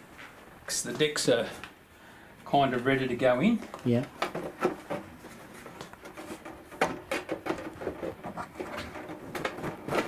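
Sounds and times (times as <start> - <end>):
plastic parts tapping and clicking: 5.8 - 10.0.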